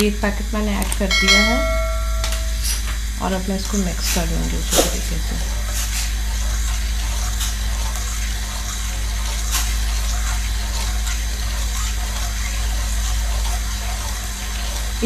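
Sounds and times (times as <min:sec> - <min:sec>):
steady low hum: 0:00.0 - 0:15.0
faint light clinks: 0:01.1 - 0:02.9.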